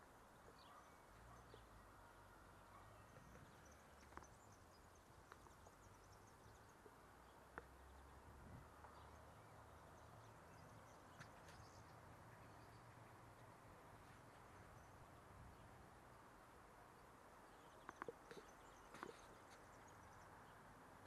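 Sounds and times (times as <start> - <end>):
soft clicks: 17.8 - 19.3.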